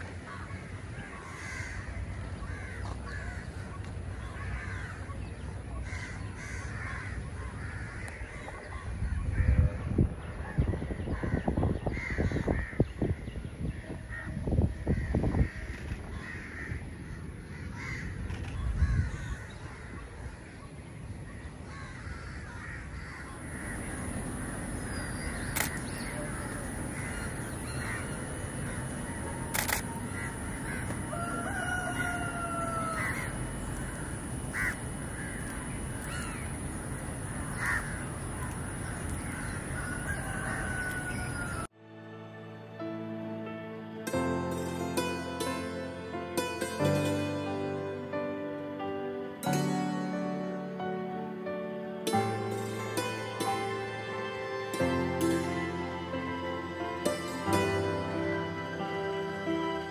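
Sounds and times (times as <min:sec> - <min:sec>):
harsh caw-like bird calls: 0:00.2 - 0:05.2, 0:05.8 - 0:09.7, 0:11.1 - 0:13.2, 0:14.1 - 0:20.6, 0:21.6 - 0:41.7
background hum: 0:21.7 - 0:41.7.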